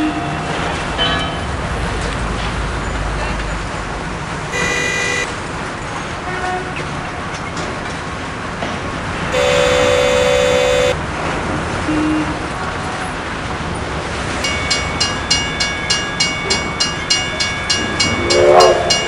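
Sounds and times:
traffic hum: 1.8 - 6.2, 8.0 - 11.1
car horn honking: 4.5 - 5.4, 9.3 - 11.0.

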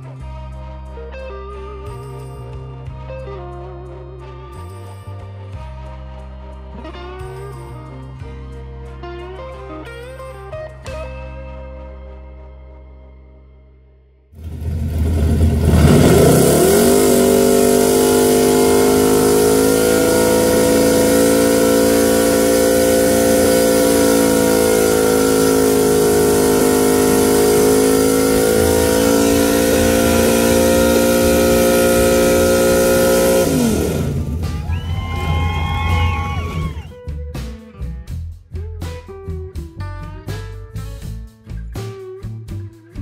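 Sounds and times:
car engine revving high: 14.4 - 36.8.

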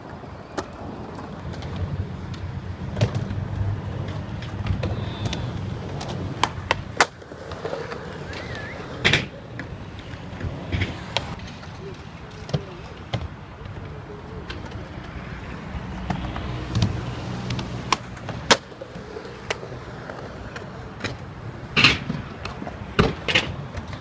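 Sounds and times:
skateboard wheels rolling on concrete: 0.0 - 24.0
skateboard landing clack: 4.0 - 11.7, 16.1 - 24.0
skateboard pop: 4.0 - 14.8.

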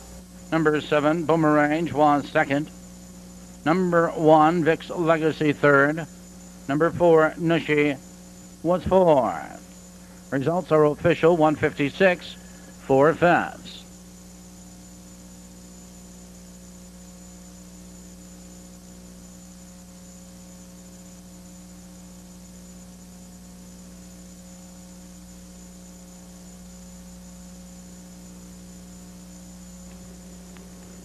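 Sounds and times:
faint hiss: 0.0 - 14.7
electrical mains hum: 0.0 - 31.0.

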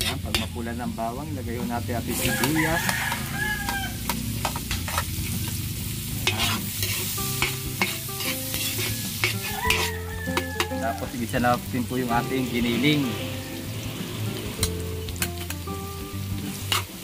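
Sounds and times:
metal ladle scraping wok: 0.0 - 0.6, 2.1 - 11.6, 16.3 - 17.0
onion sizzling in hot oil: 0.0 - 17.0.

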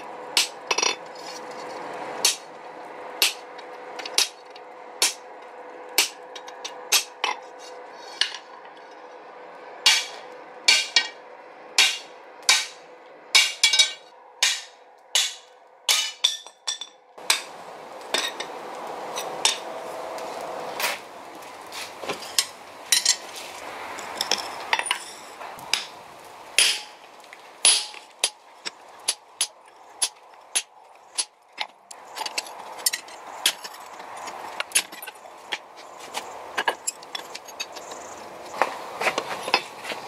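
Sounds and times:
hammer striking metal chisel: 13.4 - 17.5
steady rushing noise: 17.2 - 40.0.

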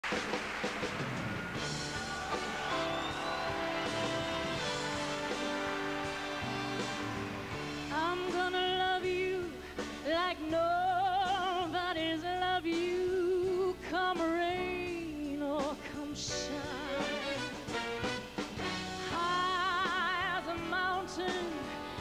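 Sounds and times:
orchestral accompaniment: 1.5 - 8.8, 16.9 - 19.2
woman singing a slow ballad: 7.9 - 17.4, 19.0 - 22.0.

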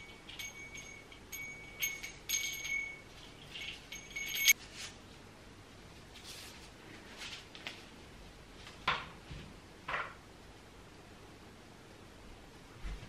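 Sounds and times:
small bell ringing: 0.0 - 4.6.

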